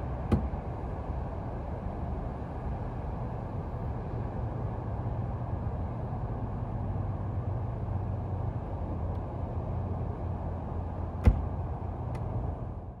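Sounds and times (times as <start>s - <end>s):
low hum of roof mechanism: 0.0s - 6.1s, 6.9s - 13.0s
trunk lid thump: 0.3s - 0.6s, 11.2s - 11.6s.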